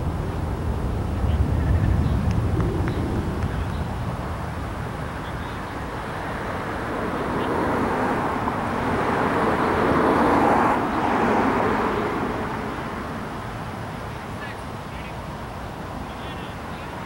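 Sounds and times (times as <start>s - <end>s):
steady low rumble: 0.0s - 6.2s
vehicle passing by: 1.2s - 5.1s, 6.0s - 13.7s.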